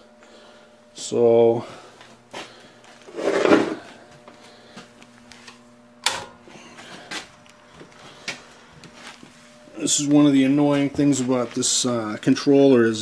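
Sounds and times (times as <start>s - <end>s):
faint electrical hum: 0.0s - 13.0s
scraping handling noise: 3.0s - 3.9s.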